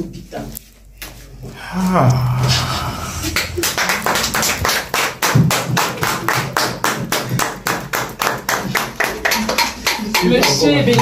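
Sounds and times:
hands clapping quickly: 0:03.4 - 0:10.6.

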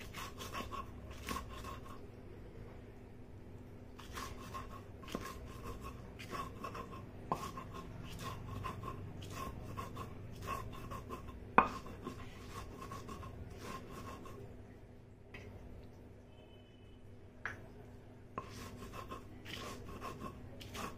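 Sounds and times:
stone grinding gritty scraping: 0:04.0 - 0:14.3, 0:18.4 - 0:20.9.

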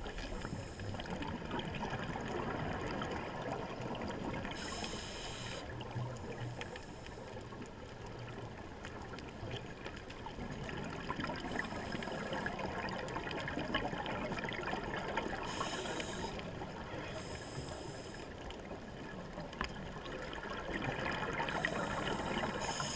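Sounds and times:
underwater watery hiss: 0:00.0 - 0:01.6, 0:04.0 - 0:07.5, 0:11.3 - 0:13.5, 0:14.6 - 0:18.6, 0:20.8 - 0:22.9
faint underwater clicks: 0:00.0 - 0:22.9
scuba bubbling: 0:00.0 - 0:22.9.

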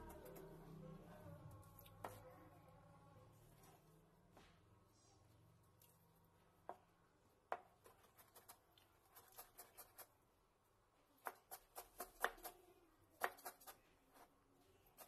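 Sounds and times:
knife chopping on plastic board: 0:11.2 - 0:12.6.

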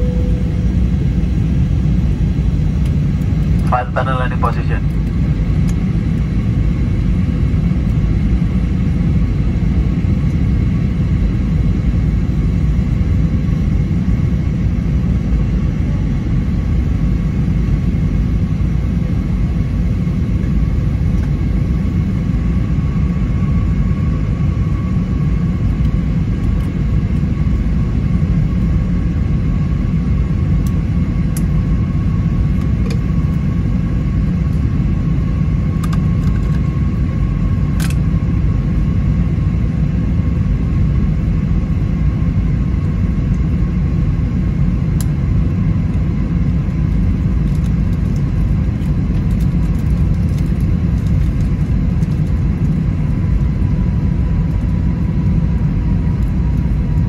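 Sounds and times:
faint high whine: 0:00.0 - 0:05.4
low rumble of jet engines: 0:00.0 - 0:57.0.

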